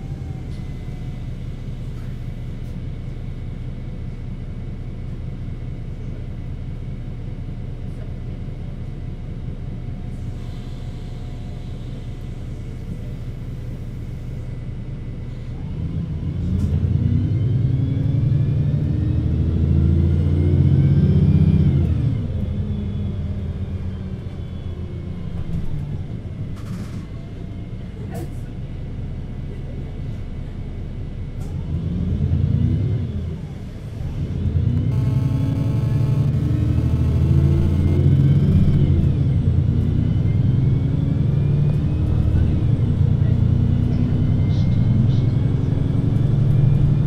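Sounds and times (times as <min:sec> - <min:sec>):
bus engine idling: 0:00.0 - 0:16.2, 0:42.0 - 0:46.8
engine sound rising in pitch: 0:34.0 - 0:42.8.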